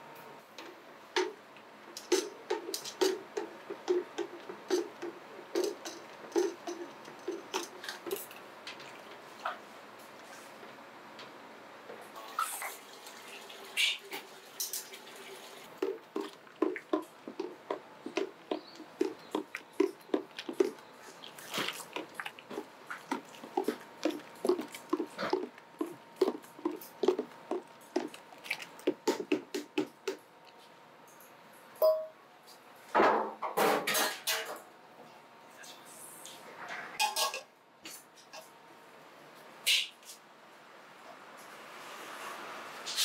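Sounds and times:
thick liquid sloshing: 0:15.7 - 0:29.6.

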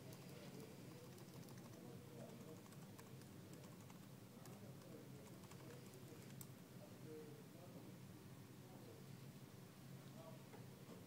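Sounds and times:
computer keyboard clicks: 0:01.0 - 0:01.8, 0:02.4 - 0:04.6, 0:05.2 - 0:06.5.

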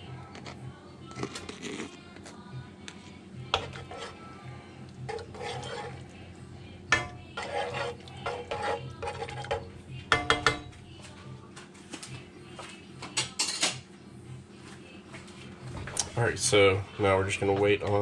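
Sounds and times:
spoon stirring sauce in a pan: 0:03.5 - 0:10.8
spoon clinking against pan: 0:03.6 - 0:04.2, 0:06.9 - 0:10.8.

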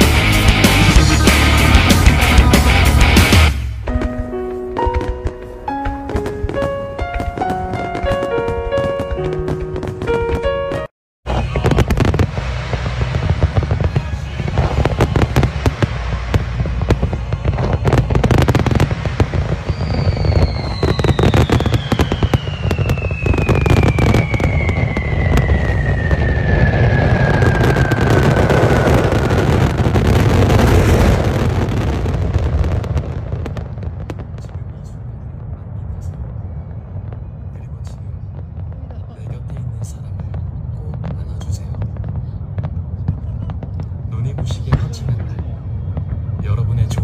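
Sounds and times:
deep rumble: 0:00.0 - 0:04.1, 0:06.1 - 0:47.0
fireworks bursting and crackling: 0:00.0 - 0:47.0
firework whistle falling in pitch: 0:19.6 - 0:29.7.

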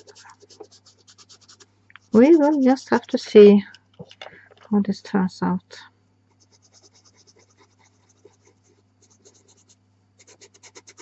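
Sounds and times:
pencil scratching on paper: 0:00.0 - 0:03.3, 0:06.3 - 0:11.0.

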